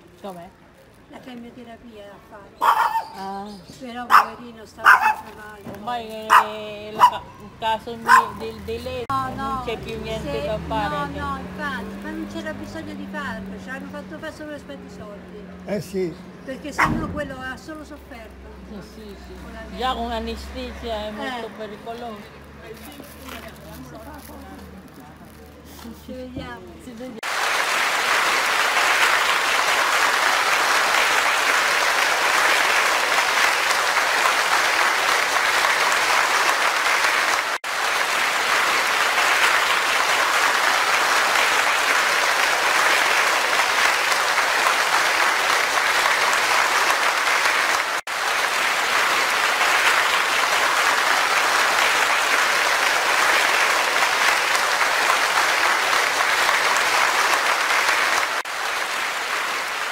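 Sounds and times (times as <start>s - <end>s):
crowd applause: 27.2s - 59.9s.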